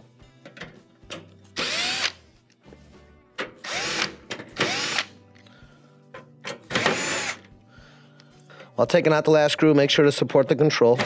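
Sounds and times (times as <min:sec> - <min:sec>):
cordless drill motor spinning: 0:01.6 - 0:02.2.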